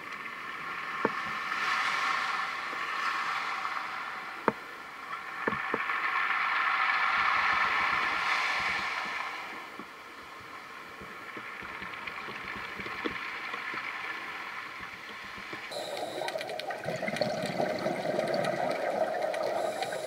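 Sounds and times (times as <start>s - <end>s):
waves washing on pebble beach: 5.6s - 9.7s.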